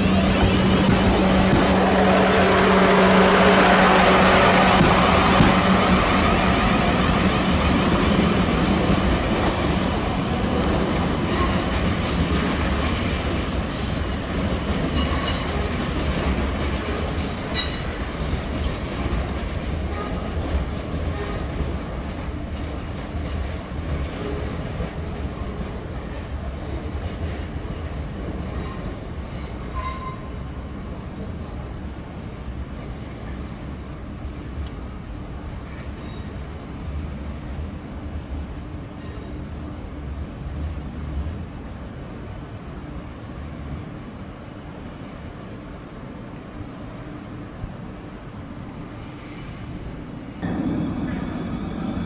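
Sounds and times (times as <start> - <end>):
train wheel squeals: 14.5 - 15.8, 16.9 - 18.4, 24.2 - 25.3, 28.4 - 30.4, 35.7 - 36.4, 39.0 - 39.4.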